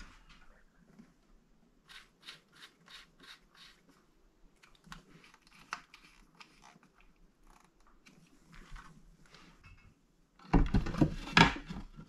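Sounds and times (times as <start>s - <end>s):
hands scratching insulated wire: 1.8s - 4.0s.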